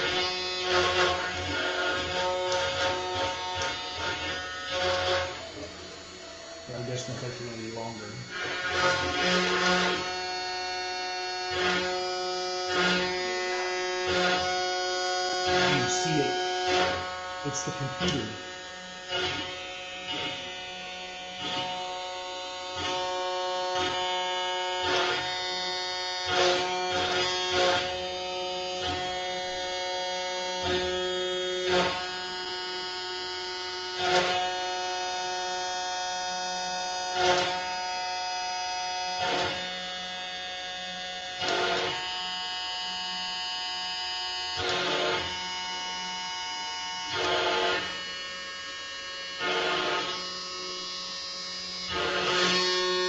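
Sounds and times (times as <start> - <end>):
cnc router motor whine: 0.0 - 53.0
router bit cutting wood: 0.0 - 53.0.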